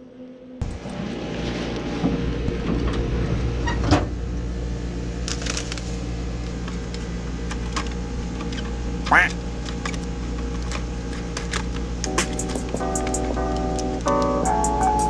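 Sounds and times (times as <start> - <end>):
vending machine humming: 0.6 - 15.0
snack wrappers crinkling: 5.2 - 6.0.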